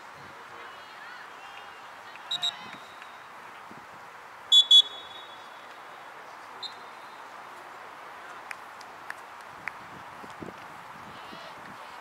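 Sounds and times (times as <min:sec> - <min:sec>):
steady background noise: 0:00.0 - 0:12.0
referee's whistle blasts: 0:02.3 - 0:03.0, 0:04.5 - 0:05.5.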